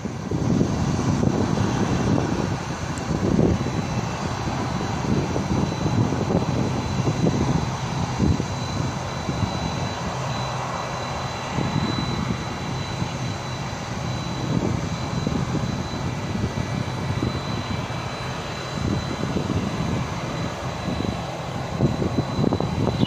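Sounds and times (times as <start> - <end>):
distant jet engines whining: 0.0 - 23.0
wind on microphone: 0.0 - 23.0.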